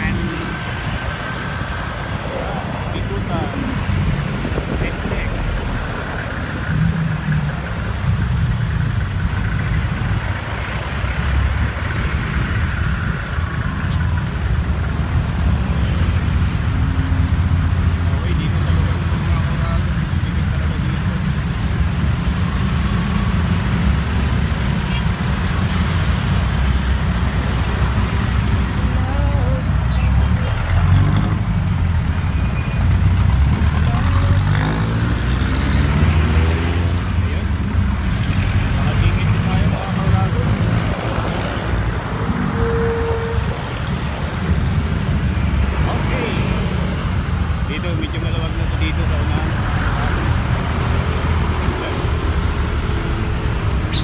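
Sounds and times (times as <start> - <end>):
traffic engines rumbling: 0.0 - 54.0
engine revving: 33.0 - 37.4.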